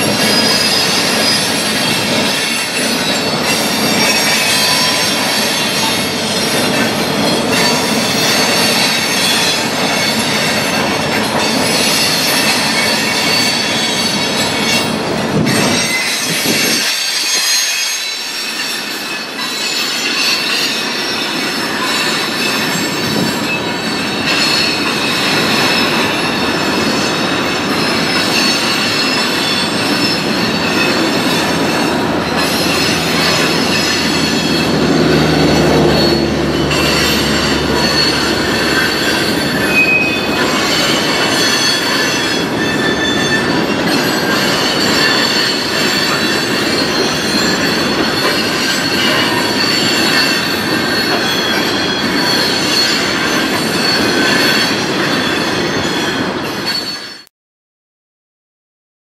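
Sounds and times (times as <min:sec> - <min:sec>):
rail rumble: 0:00.0 - 0:55.6
steel wheels squealing on track: 0:00.0 - 0:57.3
deep drone: 0:31.7 - 0:39.7.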